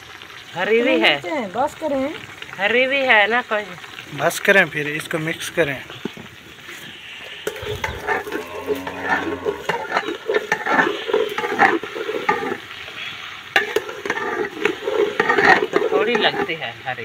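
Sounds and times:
food sizzling in oil: 0:00.0 - 0:17.0
spoon scraping and knocking pot: 0:07.4 - 0:12.6, 0:13.6 - 0:16.6.

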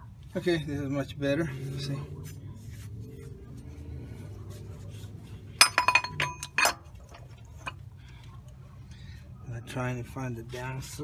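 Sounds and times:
metal pulley clinking and rattling: 0:05.6 - 0:07.8.

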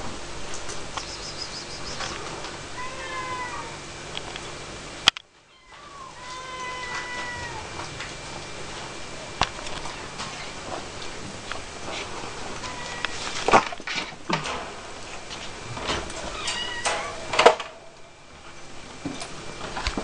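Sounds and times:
cat meowing: 0:02.8 - 0:03.8, 0:05.5 - 0:07.8, 0:12.6 - 0:13.2, 0:16.3 - 0:17.2.

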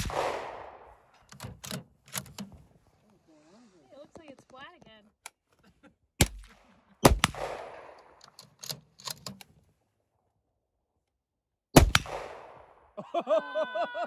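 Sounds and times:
rifle shots echoing: 0:00.0 - 0:01.7, 0:06.2 - 0:08.6, 0:11.8 - 0:12.9.

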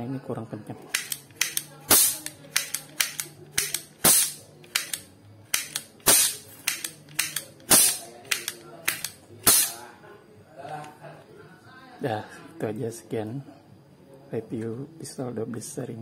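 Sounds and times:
cap gun mechanism clicks: 0:00.9 - 0:09.8
cap gun bangs: 0:01.0 - 0:02.2, 0:03.0 - 0:04.9, 0:05.6 - 0:09.8.

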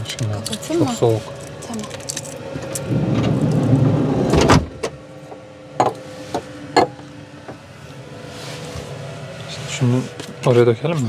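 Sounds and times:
sliding van door rolling shut: 0:02.4 - 0:05.1
door slamming: 0:02.9 - 0:05.0.

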